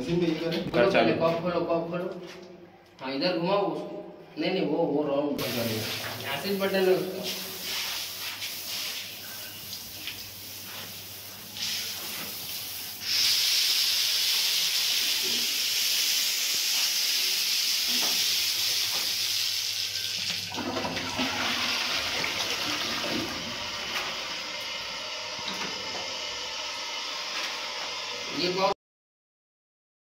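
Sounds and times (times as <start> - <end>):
toilet flushing: 5.4 - 8.2, 8.9 - 28.6
water spraying from hand shower: 5.4 - 28.3.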